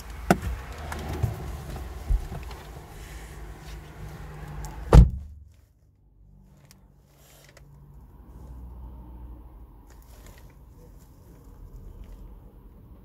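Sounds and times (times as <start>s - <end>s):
car engine and road rumble: 0.0s - 13.0s
loud thump: 4.9s - 5.4s.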